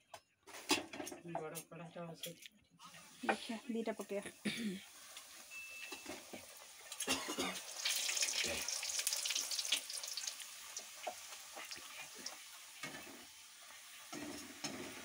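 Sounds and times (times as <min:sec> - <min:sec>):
dough sizzling in hot oil: 0:04.8 - 0:15.0.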